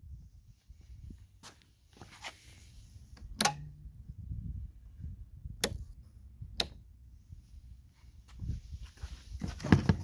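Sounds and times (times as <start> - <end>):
rocker switch clicks: 3.2 - 3.8, 5.6 - 5.9, 6.5 - 6.8.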